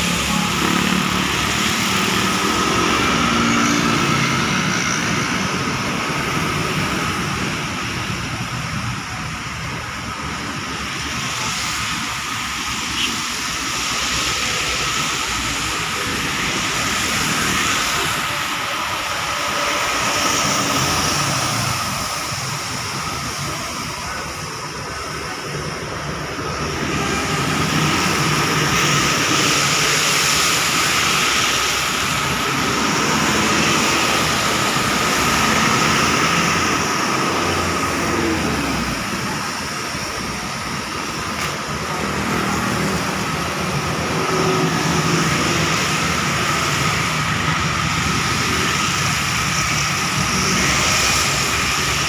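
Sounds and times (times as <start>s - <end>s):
traffic passing on wet road: 0.0s - 52.0s.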